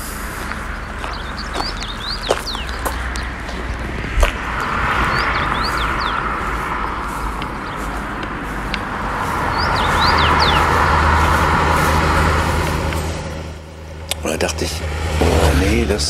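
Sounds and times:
road traffic passing: 0.0 - 16.0
bird singing whistled notes: 1.0 - 2.9.

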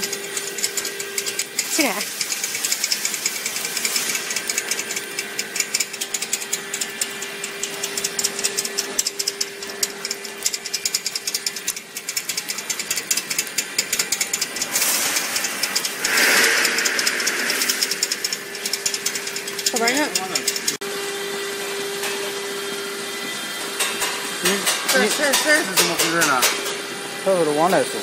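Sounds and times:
machinery rattle of clicks: 0.0 - 20.8
machinery hum: 0.0 - 28.0
hiss: 1.6 - 4.9, 14.6 - 19.5.

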